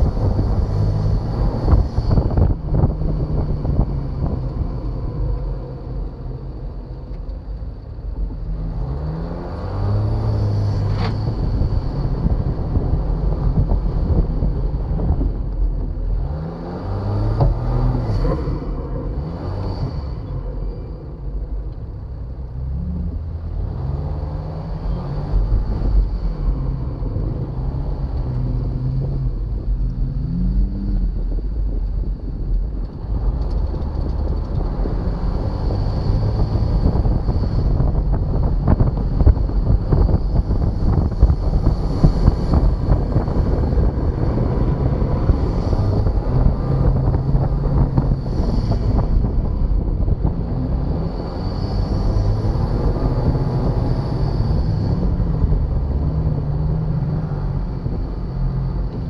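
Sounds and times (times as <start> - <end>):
car engine revving: 0.0 - 59.0
wind rushing over microphone: 0.0 - 59.0.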